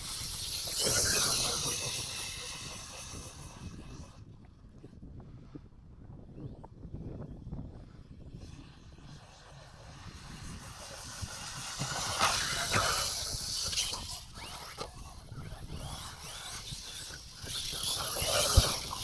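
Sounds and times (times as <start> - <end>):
wheels hissing through sand: 0.0 - 4.2, 7.9 - 19.0
electric rc car motors whining: 0.0 - 4.3, 8.0 - 19.0
knocks of landings: 9.9 - 19.0.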